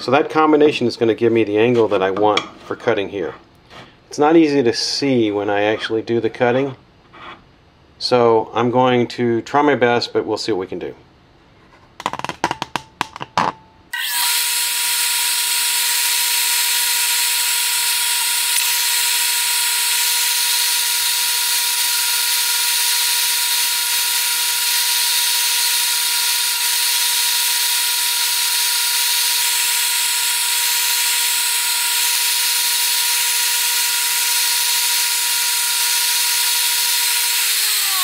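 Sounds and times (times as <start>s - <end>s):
bench grinder grinding rod: 14.0s - 38.0s.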